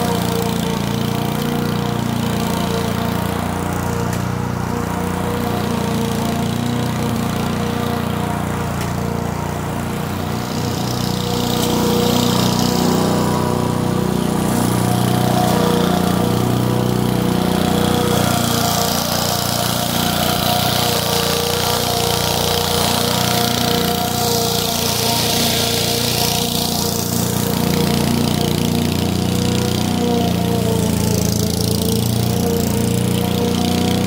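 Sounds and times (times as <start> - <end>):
lawn mower engine running: 0.0 - 34.0
mower blades hissing through grass: 0.0 - 34.0.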